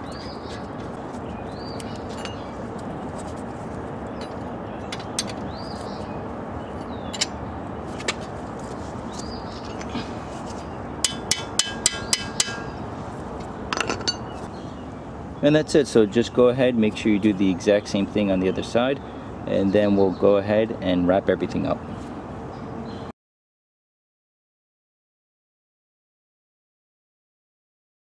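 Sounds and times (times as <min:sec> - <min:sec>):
birds chirping: 0:00.0 - 0:23.1
outdoor background noise: 0:00.0 - 0:23.1.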